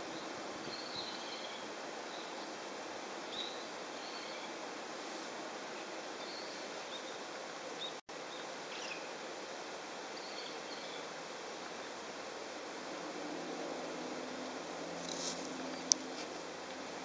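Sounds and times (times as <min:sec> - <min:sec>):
faint high bird chirps: 0:00.0 - 0:02.5, 0:03.3 - 0:04.6, 0:07.8 - 0:09.1
outdoor background noise: 0:00.0 - 0:17.0.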